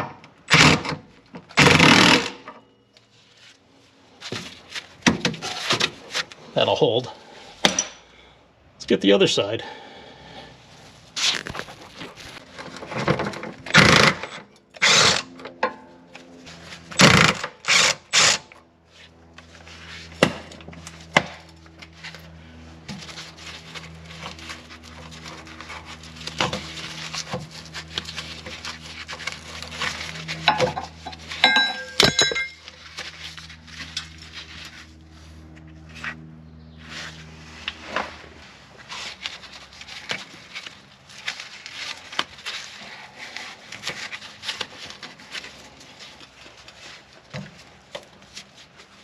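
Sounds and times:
impact wrench bursts: 0:00.5 - 0:02.5, 0:13.7 - 0:15.3, 0:17.0 - 0:18.5
low steady hum: 0:18.5 - 0:49.0
metallic clinks: 0:31.4 - 0:32.7.

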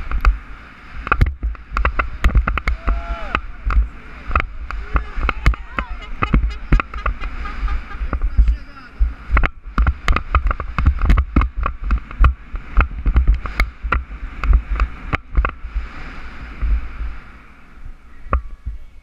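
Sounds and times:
wind rumbling on microphone: 0:00.0 - 0:19.0
bike clattering over dirt: 0:01.1 - 0:07.2.

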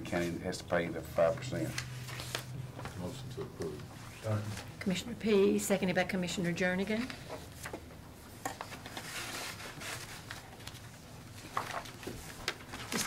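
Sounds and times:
papers rustling: 0:01.2 - 0:04.7, 0:06.8 - 0:13.0.

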